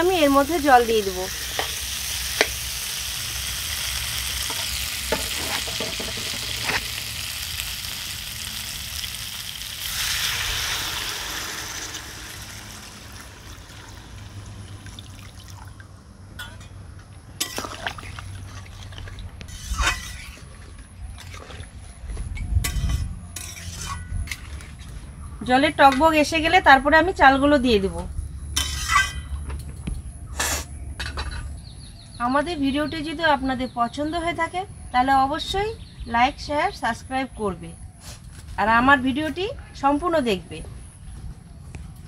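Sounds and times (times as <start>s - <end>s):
food sizzling in oil: 0.0s - 14.8s
water poured into hot pan: 6.4s - 15.8s.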